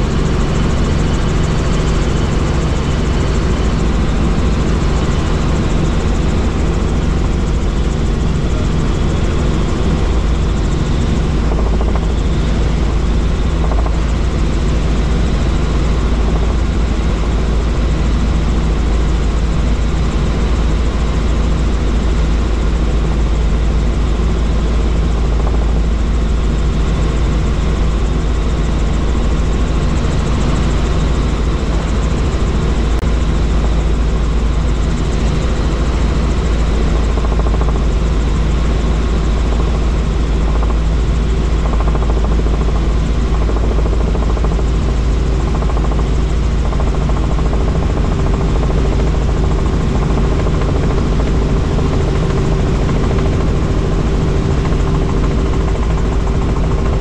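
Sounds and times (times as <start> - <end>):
helicopter engine and rotor: 0.0 - 57.0.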